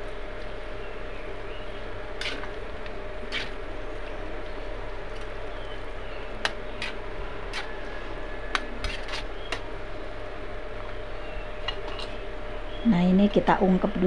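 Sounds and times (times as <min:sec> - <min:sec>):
steady hum: 0:00.0 - 0:14.0
metal spatula scraping wok: 0:02.2 - 0:02.6, 0:03.3 - 0:03.6, 0:06.7 - 0:09.6, 0:11.6 - 0:12.2.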